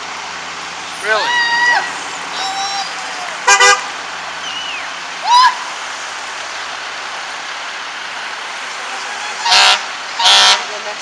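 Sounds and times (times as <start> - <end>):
traffic on a wet road: 0.0 - 11.0
rising siren whoop: 1.0 - 3.4
vehicle horn blast: 3.4 - 3.9, 9.5 - 10.7.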